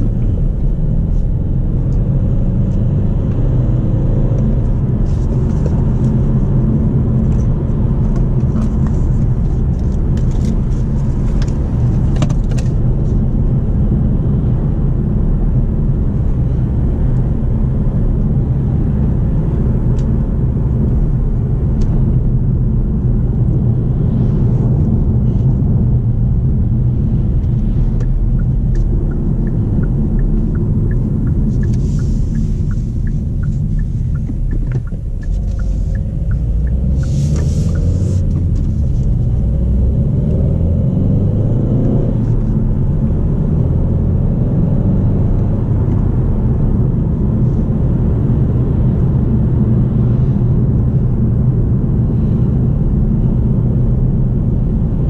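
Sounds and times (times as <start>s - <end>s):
car engine and road noise: 0.0s - 55.0s
light regular ticking: 28.0s - 38.0s.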